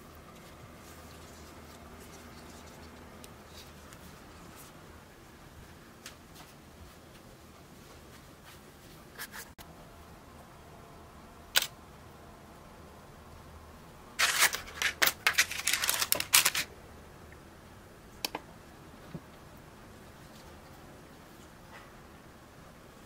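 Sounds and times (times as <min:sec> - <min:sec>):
paper cases crinkling: 0:14.2 - 0:16.7.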